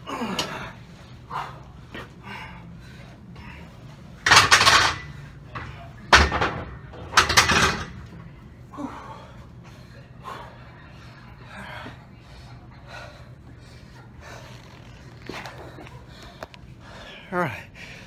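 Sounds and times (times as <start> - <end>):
man breathing hard: 0.0 - 3.9, 8.7 - 14.6, 15.3 - 18.0.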